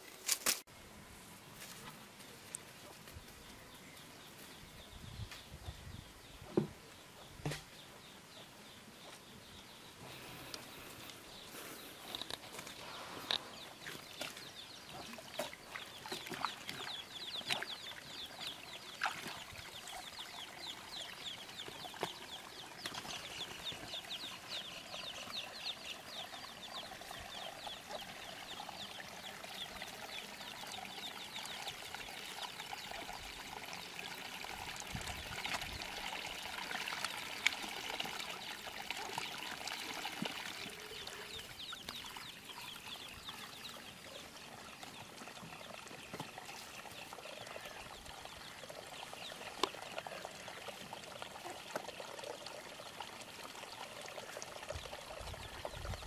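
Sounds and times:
muddy water pouring and splashing: 0:12.4 - 0:56.0.

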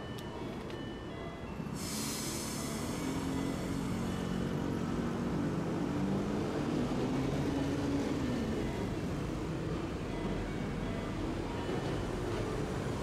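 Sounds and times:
hiss: 0:01.8 - 0:03.0.

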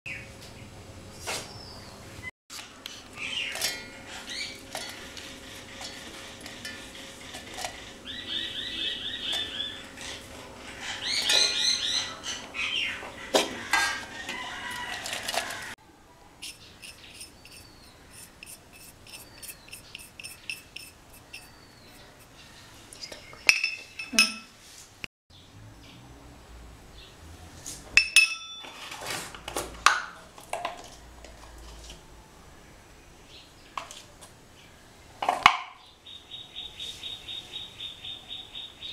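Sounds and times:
birds chirping: 0:03.1 - 0:05.8, 0:06.4 - 0:14.2, 0:16.4 - 0:24.2, 0:35.8 - 0:38.9
metal plates and bowls clinking: 0:03.3 - 0:07.9, 0:13.4 - 0:14.2, 0:23.4 - 0:24.5, 0:28.0 - 0:28.9.

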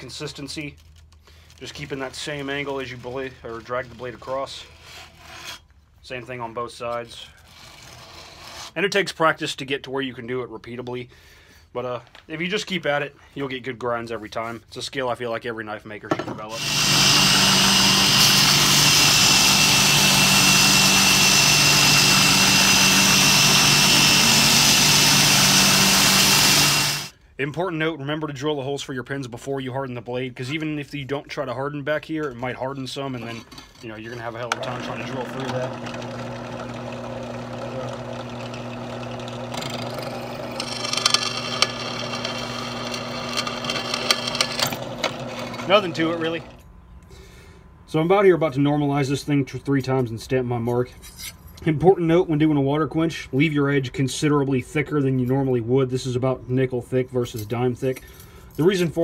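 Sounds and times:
belt grinder grinding blade: 0:16.6 - 0:27.1, 0:33.7 - 0:46.6
drill press motor hum: 0:16.6 - 0:27.1, 0:34.5 - 0:46.6
high-pitched metal cutting: 0:16.6 - 0:27.1, 0:34.7 - 0:46.6.

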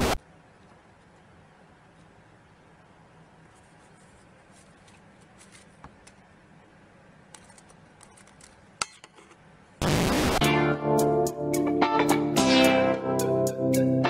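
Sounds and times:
loud tv static hiss: 0:00.0 - 0:03.5, 0:09.6 - 0:10.4.

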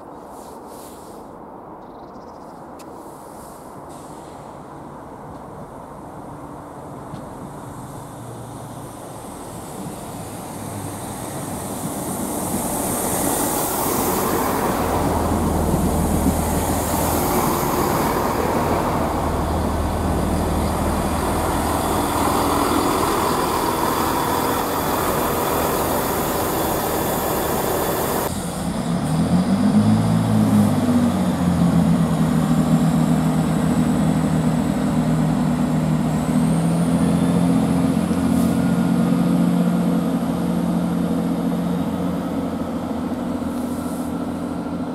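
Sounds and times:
diesel engines droning: 0:03.4 - 0:44.9
train rushing past: 0:06.4 - 0:44.9
faint rising whine: 0:12.1 - 0:28.4.

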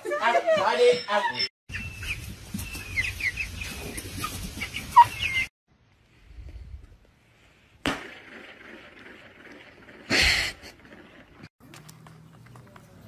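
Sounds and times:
chickens clucking: 0:01.7 - 0:05.5.

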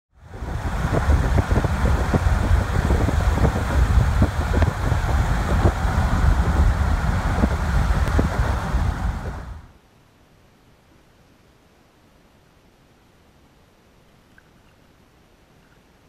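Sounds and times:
car road and engine noise: 0:00.2 - 0:09.7
wind buffeting microphone: 0:00.2 - 0:09.7.

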